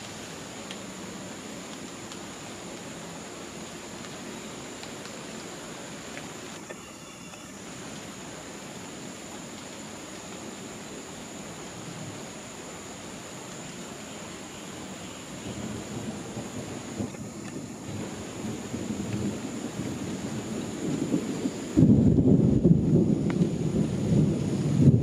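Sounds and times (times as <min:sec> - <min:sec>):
thin high tone: 0:06.6 - 0:07.7.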